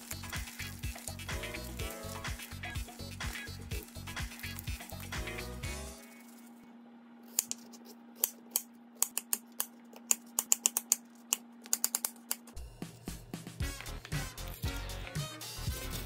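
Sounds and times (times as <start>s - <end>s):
background music: 0.0s - 6.0s, 12.6s - 16.0s.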